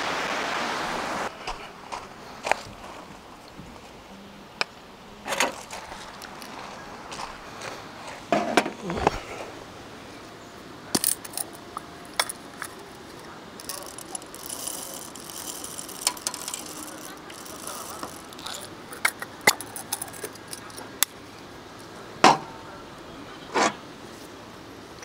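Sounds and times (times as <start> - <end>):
rustling: 5.2 - 9.6, 11.0 - 21.0
small objects clicking and clinking: 11.0 - 20.9.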